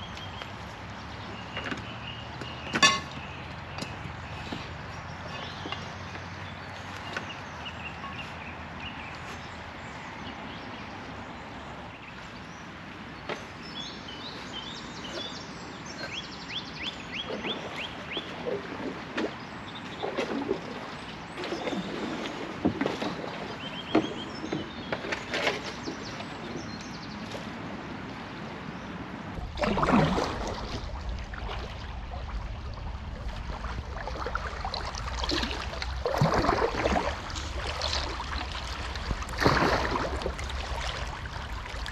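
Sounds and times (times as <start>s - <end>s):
birds chirping: 0.0s - 41.9s
kayak paddle splashing: 13.2s - 27.6s, 29.3s - 41.9s
river flowing: 26.0s - 41.9s
low rumble: 29.3s - 41.9s.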